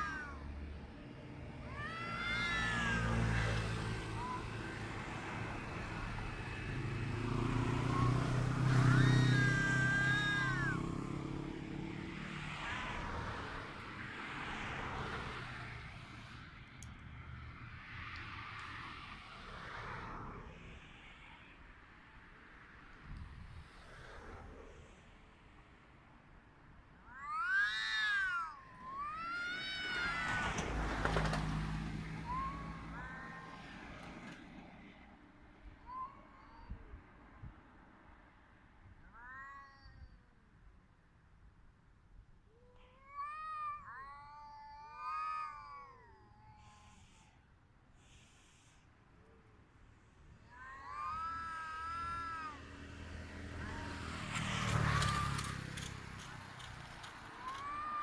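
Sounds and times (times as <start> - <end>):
cat yowling: 0.0 - 0.5, 1.5 - 11.6, 12.2 - 14.7, 27.0 - 34.5, 35.6 - 37.0, 38.9 - 40.3, 42.5 - 47.4, 50.3 - 58.0
vehicle rumbling past: 0.0 - 22.0, 27.4 - 36.1, 49.7 - 58.0
short faint cry: 27.1 - 34.9, 50.4 - 52.8, 53.4 - 58.0.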